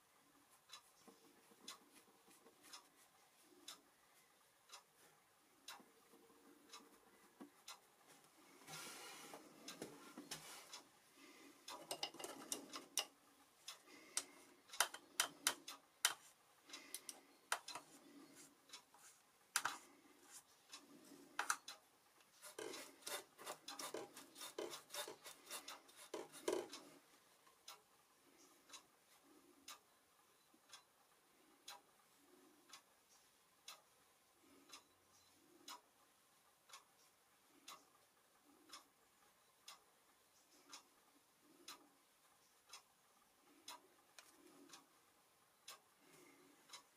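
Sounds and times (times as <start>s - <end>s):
faint steady ticking: 0.0s - 46.9s.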